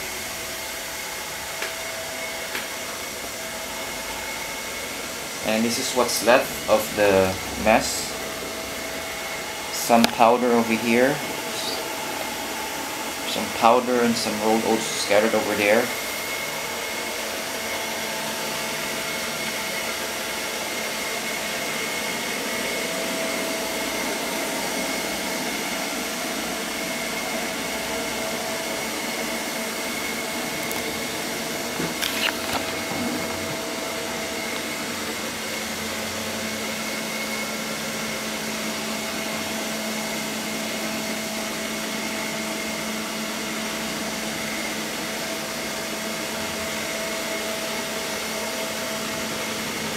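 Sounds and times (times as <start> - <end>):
robot vacuum whirring: 29.9 - 35.6.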